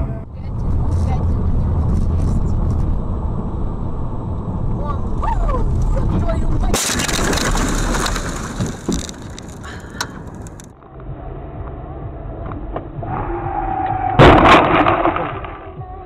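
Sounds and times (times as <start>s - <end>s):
car crash: 5.2s - 10.7s, 14.1s - 15.8s
impact clatter: 6.7s - 10.8s, 14.2s - 15.8s.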